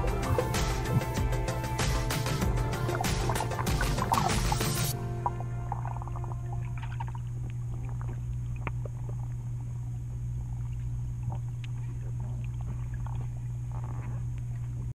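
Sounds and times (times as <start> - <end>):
underwater rumble of moving water: 2.5 - 14.9
small underwater clicks and pops: 2.9 - 14.9.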